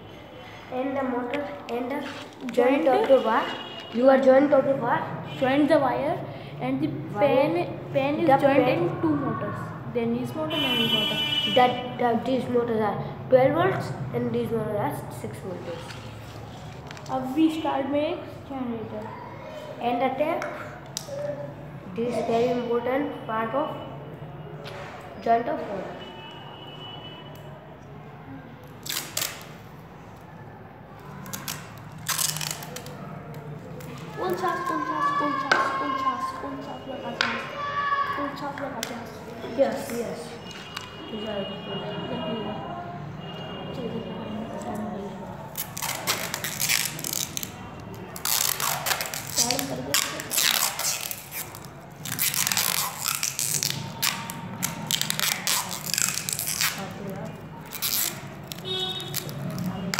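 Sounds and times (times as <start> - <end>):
tape pulled from roll: 2.0 - 2.6, 28.8 - 29.6, 31.2 - 33.0, 45.5 - 47.5, 48.2 - 56.9.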